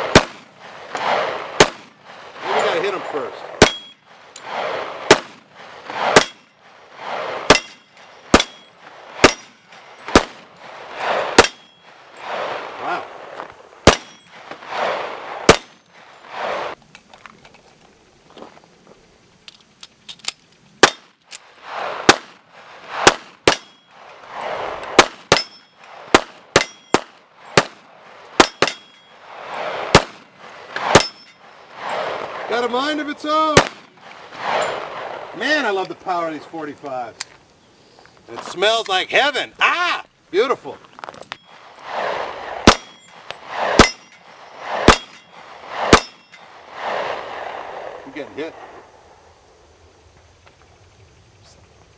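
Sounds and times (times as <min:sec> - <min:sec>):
pistol gunshots: 0:00.0 - 0:02.0, 0:03.5 - 0:11.7, 0:13.8 - 0:15.8, 0:20.8 - 0:21.1, 0:21.8 - 0:23.8, 0:24.5 - 0:28.9, 0:29.5 - 0:31.3, 0:33.4 - 0:35.3, 0:41.8 - 0:48.8
steel targets clanging: 0:03.6 - 0:04.5, 0:06.1 - 0:06.6, 0:07.5 - 0:10.6, 0:11.4 - 0:12.3, 0:13.9 - 0:14.4, 0:25.3 - 0:25.9, 0:26.6 - 0:27.0, 0:28.4 - 0:29.2, 0:30.9 - 0:32.0, 0:42.7 - 0:46.6.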